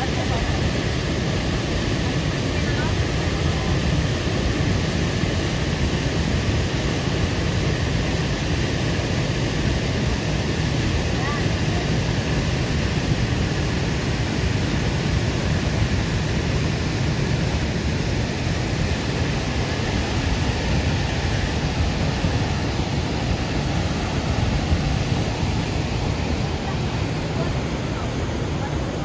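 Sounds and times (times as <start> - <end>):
waterfall rushing: 0.0 - 29.0.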